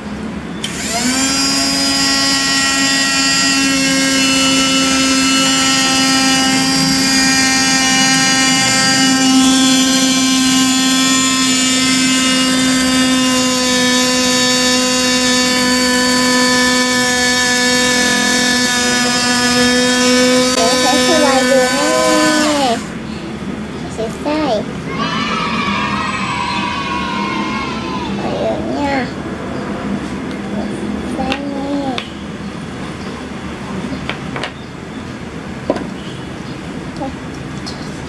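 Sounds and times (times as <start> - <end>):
toy motor buzzing hum: 0.6 - 23.0.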